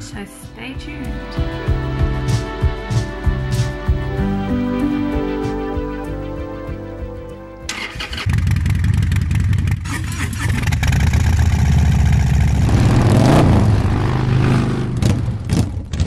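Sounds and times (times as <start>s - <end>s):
motorcycle engine idling: 7.8s - 12.7s.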